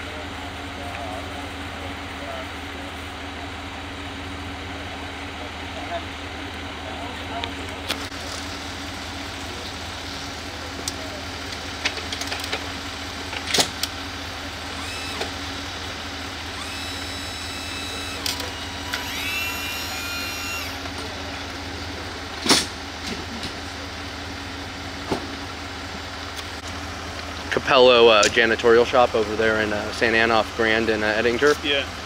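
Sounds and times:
rising whine: 14.5 - 22.1.

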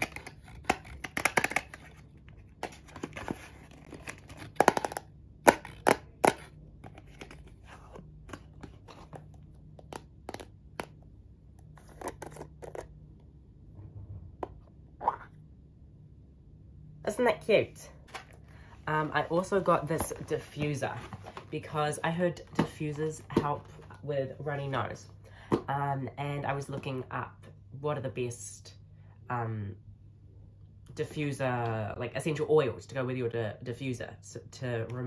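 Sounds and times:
cardboard and plastic taps and clicks: 0.0 - 1.9, 9.8 - 11.0.

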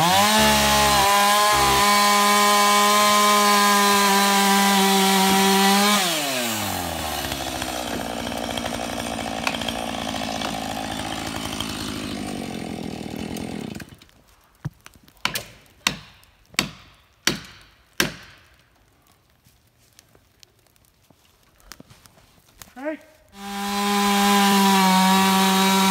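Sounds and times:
chainsaw idling: 0.0 - 13.9.

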